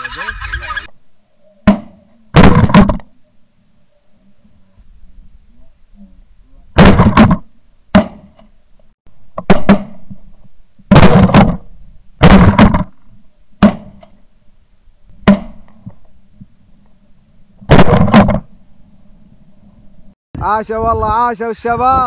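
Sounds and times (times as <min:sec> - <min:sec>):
shotgun shots: 0:06.8 - 0:07.4, 0:10.9 - 0:11.6, 0:12.2 - 0:12.9, 0:17.7 - 0:18.4.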